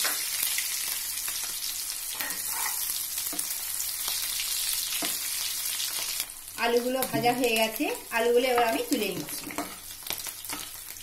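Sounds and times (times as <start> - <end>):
potatoes sizzling in oil: 0.0 - 11.0
spatula scraping pan: 2.1 - 3.5.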